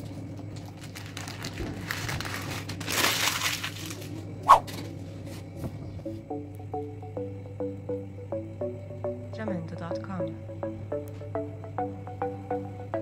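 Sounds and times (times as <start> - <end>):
steady low hum: 0.0 - 13.0
plucked background music: 6.1 - 13.0.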